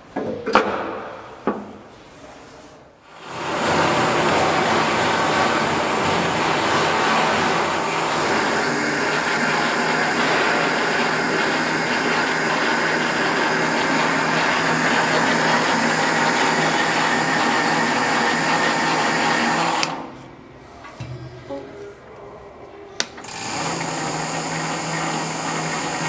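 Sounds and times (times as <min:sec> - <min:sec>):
lathe spindle hum and whine: 0:03.1 - 0:20.4, 0:23.2 - 0:26.0.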